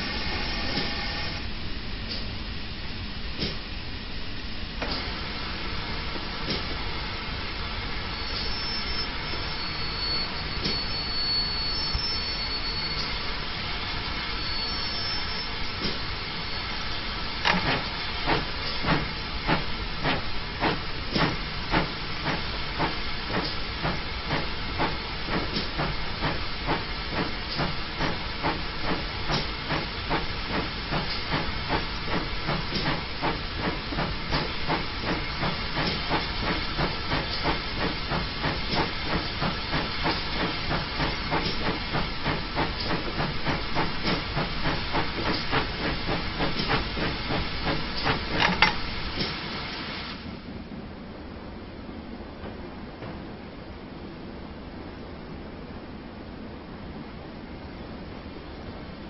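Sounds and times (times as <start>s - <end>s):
steam locomotive hissing: 0.0s - 2.4s, 4.8s - 50.3s
locomotive chuffing: 7.8s - 49.4s.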